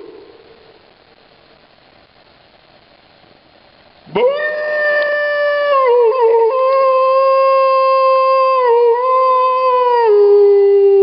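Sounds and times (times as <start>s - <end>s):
man howling like a wolf: 4.1s - 11.0s.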